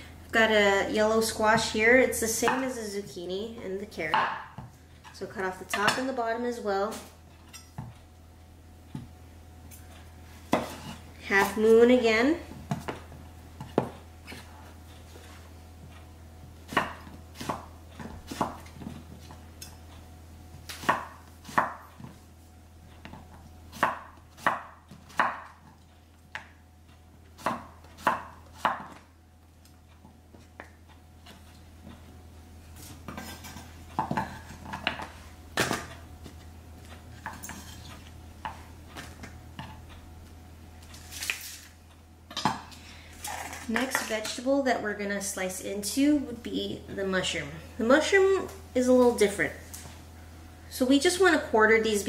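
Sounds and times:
steady low hum: 0.0 - 52.0
knife chopping on wooden board: 4.1 - 4.7, 10.5 - 11.0, 16.7 - 19.4, 20.6 - 22.1, 23.0 - 25.6, 27.4 - 29.0.

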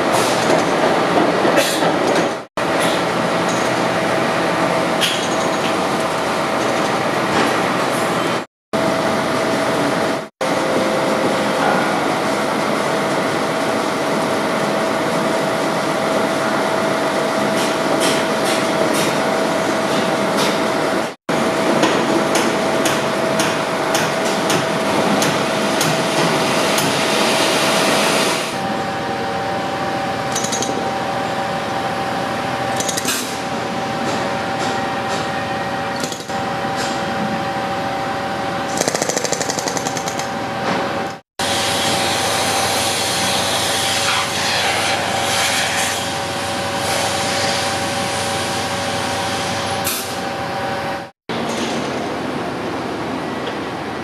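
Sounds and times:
fast mechanical hammering: 38.7 - 40.4.

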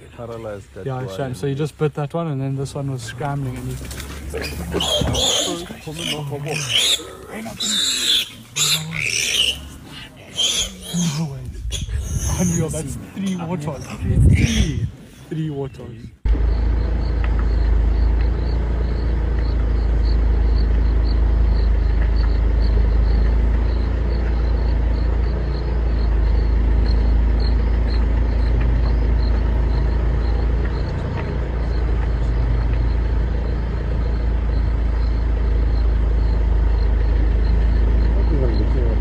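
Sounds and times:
vehicle engine rumbling: 0.0 - 39.0
faint regular ticking: 16.3 - 38.7.

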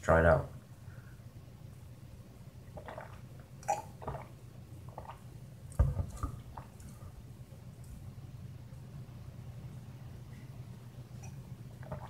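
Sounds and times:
person gulping drink: 2.6 - 5.3, 6.0 - 7.0, 11.2 - 12.0.

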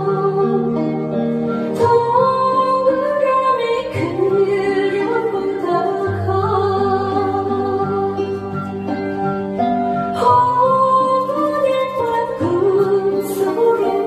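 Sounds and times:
woman singing into microphone: 0.0 - 9.2, 10.1 - 14.0
instrumental accompaniment: 0.0 - 14.0.

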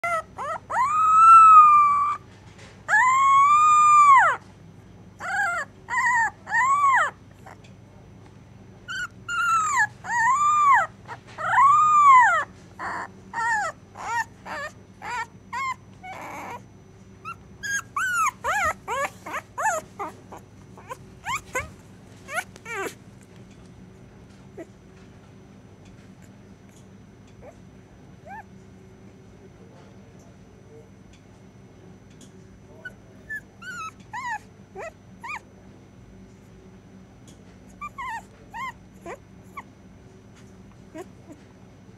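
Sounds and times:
puppy whimpering and crying: 0.0 - 2.3, 2.9 - 4.4, 5.2 - 7.6, 8.9 - 23.0, 27.4 - 27.6, 28.2 - 28.5, 32.8 - 35.4, 37.8 - 39.7, 40.9 - 41.4
puppy yipping: 0.0 - 2.3, 2.9 - 4.4, 5.2 - 7.6, 8.9 - 16.6, 17.2 - 23.0, 28.2 - 28.5, 32.8 - 35.4, 37.8 - 39.7.

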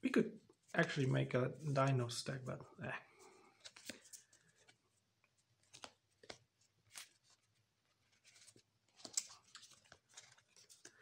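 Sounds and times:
trading cards being handled: 3.5 - 11.0.

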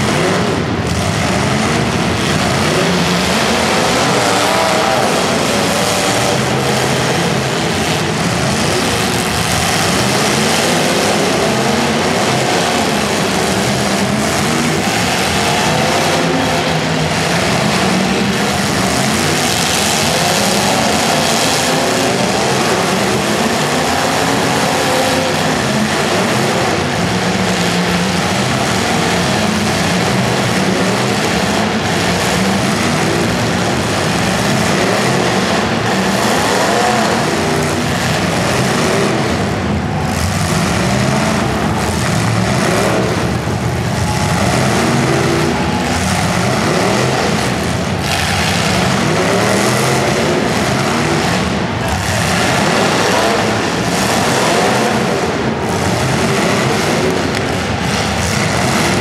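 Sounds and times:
car engines revving hard: 0.0 - 59.0.

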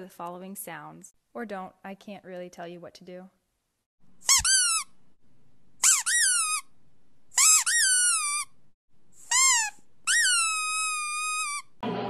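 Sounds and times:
rubber squeaky toy squeaking: 4.2 - 5.0, 5.8 - 6.7, 7.4 - 8.6, 9.2 - 11.8.

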